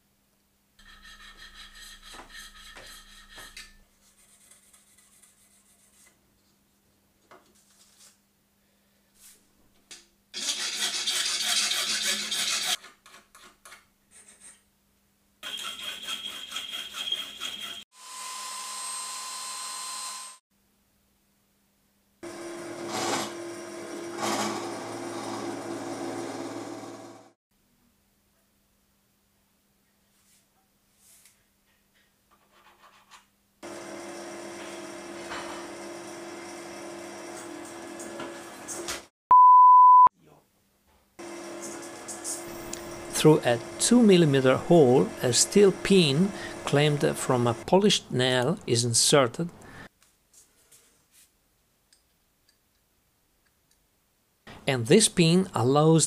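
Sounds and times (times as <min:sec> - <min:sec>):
file rasping on metal: 0:00.8 - 0:06.1, 0:10.4 - 0:13.6, 0:15.4 - 0:17.9, 0:42.9 - 0:47.5
drill press drilling: 0:22.2 - 0:27.3, 0:33.6 - 0:38.4, 0:42.8 - 0:47.6
tool noise bursts: 0:41.2 - 0:47.7.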